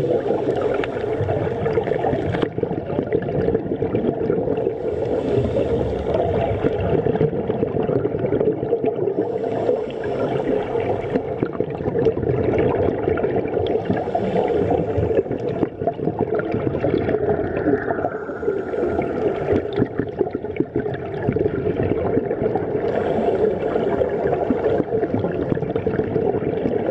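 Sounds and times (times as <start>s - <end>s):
scuba regulator bubbling: 0.0s - 26.9s
diver breathing hiss: 4.6s - 6.9s, 9.1s - 11.3s, 13.7s - 15.5s, 17.9s - 19.8s, 22.8s - 24.8s.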